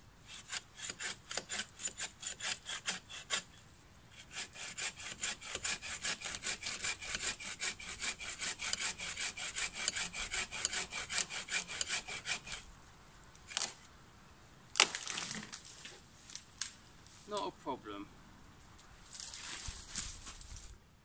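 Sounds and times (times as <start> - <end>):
saw cutting wood: 0.3 - 3.5, 4.2 - 12.7.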